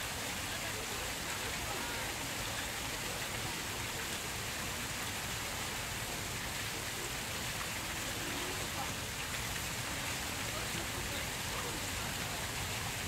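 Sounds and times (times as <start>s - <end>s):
fountain splashing: 0.0s - 13.0s.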